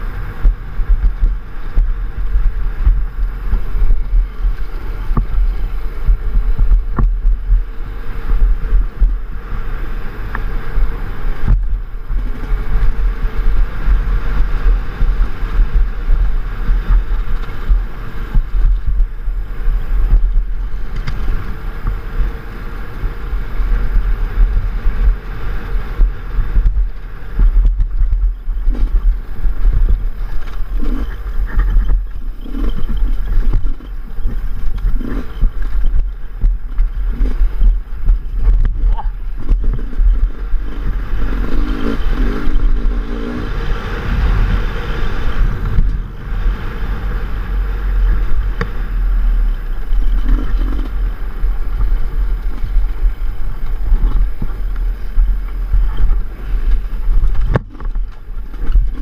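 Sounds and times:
dirt bike engine: 0:00.0 - 0:59.0
wind rumble on microphone: 0:00.0 - 0:59.0.

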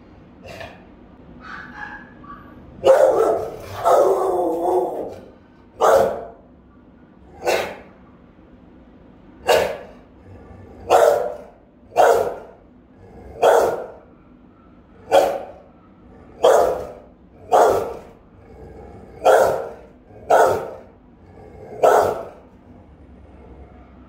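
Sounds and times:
dog barking: 0:01.4 - 0:06.5, 0:07.3 - 0:08.0, 0:09.4 - 0:10.1, 0:10.8 - 0:12.7, 0:13.3 - 0:18.2, 0:19.1 - 0:20.9, 0:21.7 - 0:22.5.

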